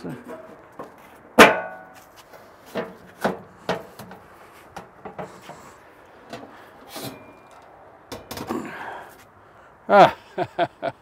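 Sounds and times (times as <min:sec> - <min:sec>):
metal lid clunking and rattling: 0:00.2 - 0:02.0, 0:02.7 - 0:05.7, 0:06.3 - 0:08.6.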